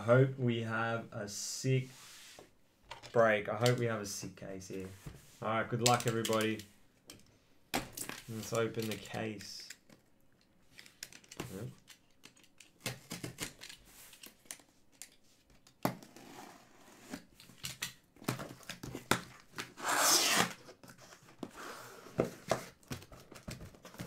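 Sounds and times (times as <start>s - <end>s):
cardboard tearing and crinkling: 19.7s - 20.6s.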